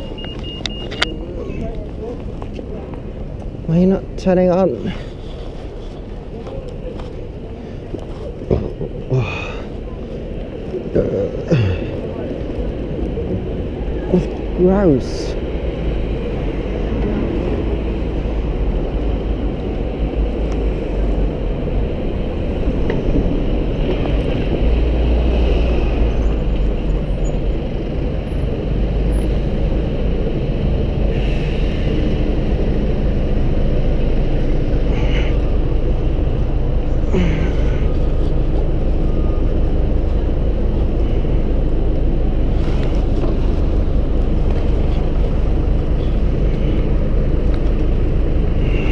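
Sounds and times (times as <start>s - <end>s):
city motor traffic: 0.0s - 48.9s
wind rumble on microphone: 15.3s - 48.9s.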